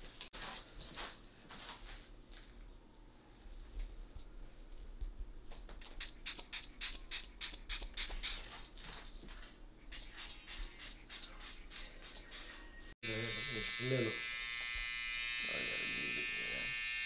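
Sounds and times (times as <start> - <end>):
spray bottle spritzing: 5.8 - 8.5.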